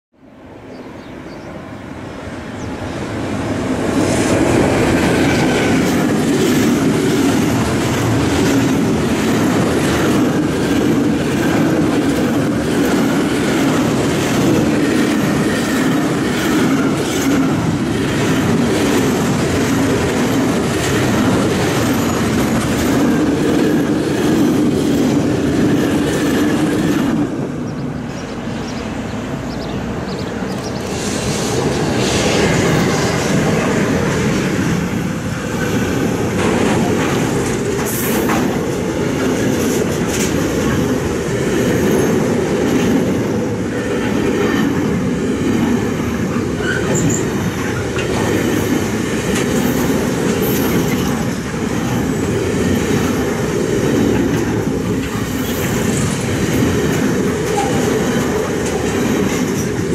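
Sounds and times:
freight train passing: 0.1s - 59.9s
train approaching: 0.1s - 59.9s
wheels clicking over rail joints: 36.3s - 45.0s, 45.6s - 59.9s.

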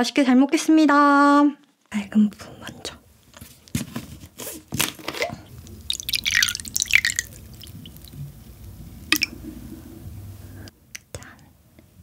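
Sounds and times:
liquid pouring into glass: 5.5s - 8.4s, 9.0s - 9.5s.

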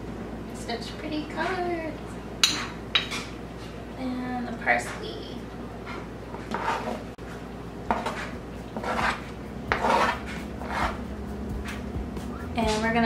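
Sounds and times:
utensil scraping cutting board: 6.4s - 7.1s, 7.9s - 11.0s.

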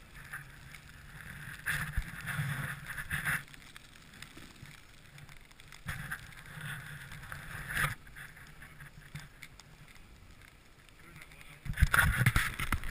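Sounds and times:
sled runners scraping on snow: 0.0s - 3.5s, 11.0s - 12.9s.

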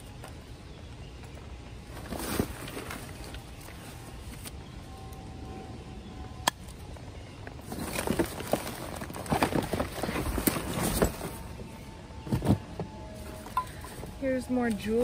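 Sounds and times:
paper and cardboard rustling: 7.6s - 11.6s.

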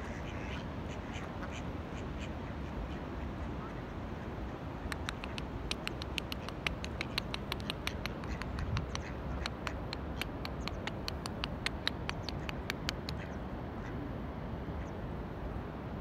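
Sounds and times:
rapid sharp clicks: 4.9s - 13.2s.

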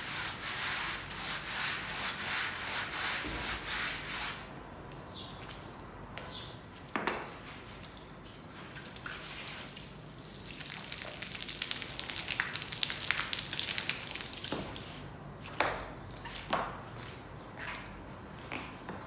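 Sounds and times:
detergent pattering on wet rug: 8.9s - 14.8s.

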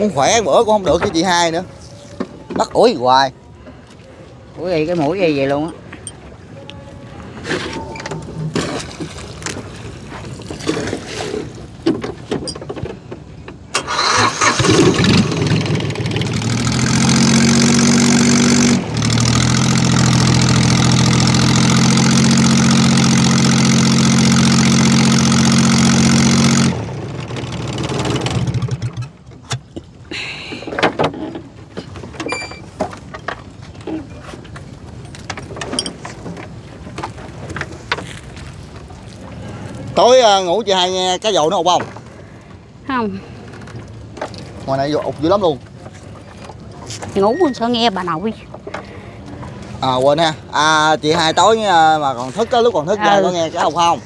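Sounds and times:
boat engine running: 12.4s - 29.7s.

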